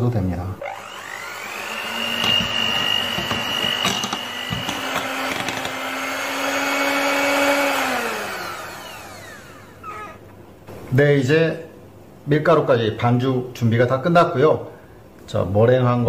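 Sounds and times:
mixer clicks: 0.6 - 10.3
electric hand mixer whining: 0.6 - 10.4.

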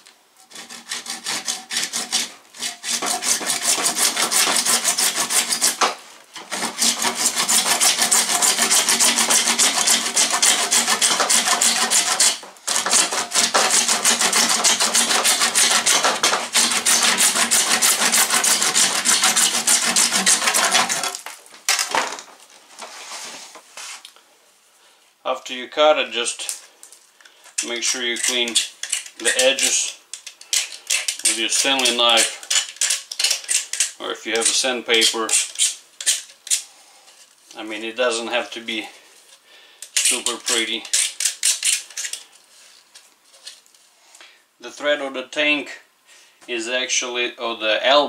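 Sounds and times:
hand saw cutting plastic pipe: 0.4 - 21.9, 27.6 - 36.6, 39.8 - 42.2
soft rubbing: 22.6 - 24.0.

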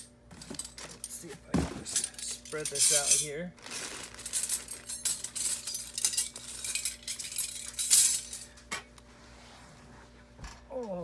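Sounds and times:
silverware clinking: 0.4 - 3.4.

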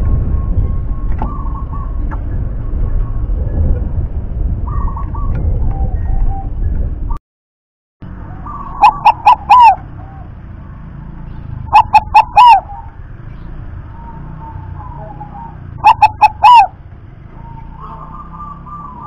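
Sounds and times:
dove cooing: 1.2 - 2.0, 8.2 - 10.4, 11.6 - 13.0, 14.0 - 16.8, 17.4 - 19.0.

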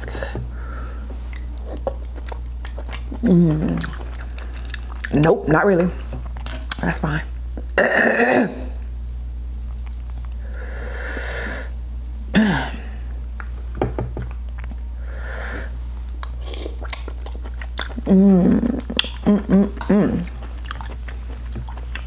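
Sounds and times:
low electrical hum: 0.0 - 22.0
person humming mm: 3.2 - 3.9, 18.0 - 20.4
wet chewing clicks: 16.1 - 18.0, 18.7 - 22.0
lip smacks: 18.8 - 19.3.

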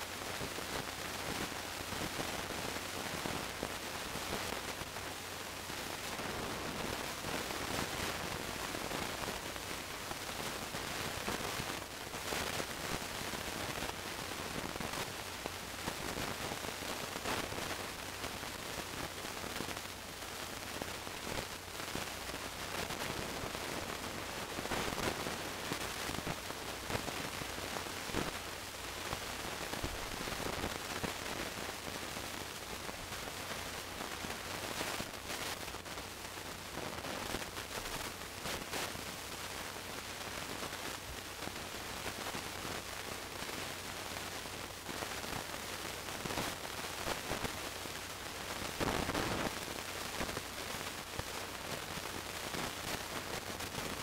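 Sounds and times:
static hiss: 0.0 - 54.0
faint crackles: 0.1 - 54.0.

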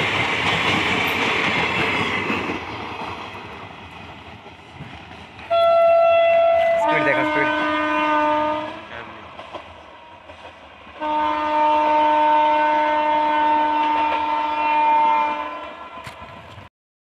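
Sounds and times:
train running noise: 0.0 - 16.7
locomotive air horn blasts: 5.5 - 8.9, 11.0 - 16.2.

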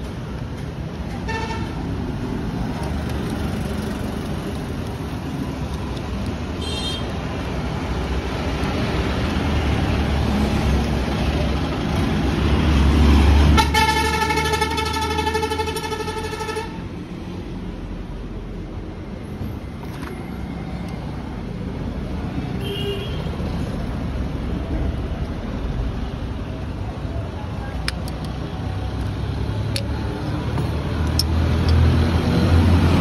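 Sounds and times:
vehicle engine rumble: 0.0 - 33.0
vehicle horn blast: 13.6 - 16.8, 22.6 - 23.2.

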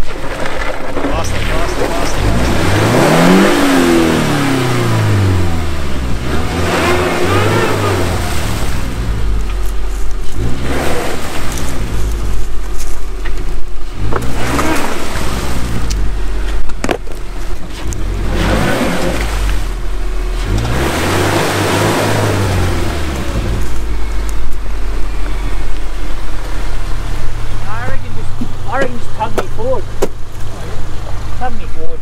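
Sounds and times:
car engine revving: 0.0 - 32.0
wheels spinning in mud: 0.0 - 32.0.

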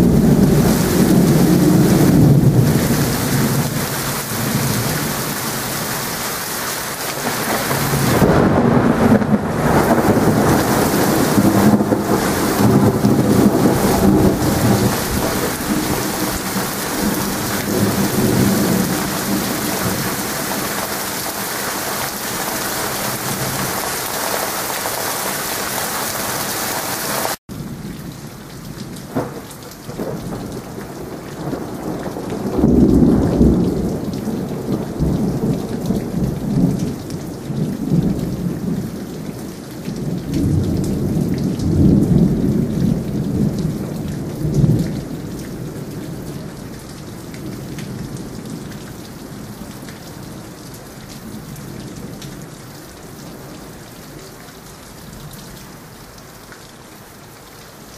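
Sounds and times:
thunder rolling: 0.0 - 5.6, 7.1 - 21.4, 29.1 - 36.9
heavy rain pouring: 0.0 - 57.9.

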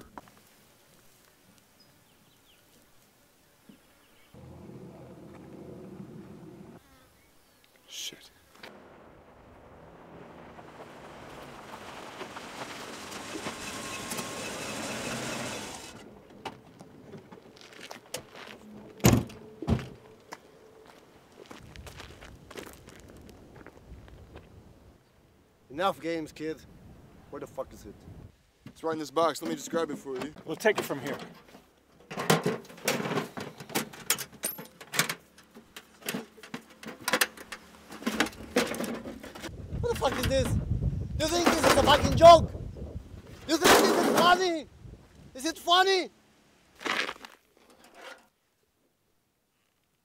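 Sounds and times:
car engine: 4.4 - 6.8, 9.6 - 16.1
tyres crunching on gravel: 9.9 - 19.0, 19.8 - 24.5, 46.7 - 47.6.

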